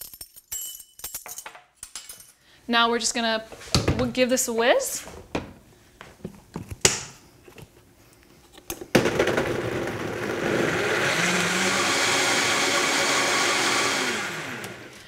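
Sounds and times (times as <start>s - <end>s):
blender motor blending fruit: 9.0s - 15.0s.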